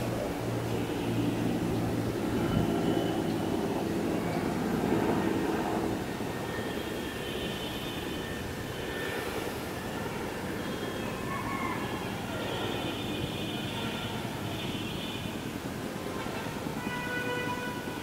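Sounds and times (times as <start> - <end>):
aircraft engines droning: 0.0 - 10.6.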